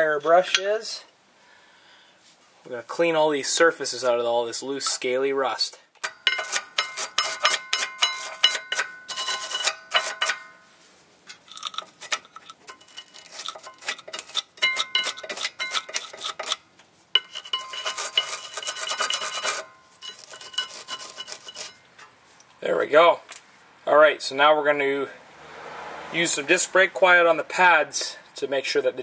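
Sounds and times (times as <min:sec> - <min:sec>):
wire brush scrubbing rusty metal: 0:06.0 - 0:10.7, 0:11.3 - 0:16.6, 0:17.2 - 0:22.3.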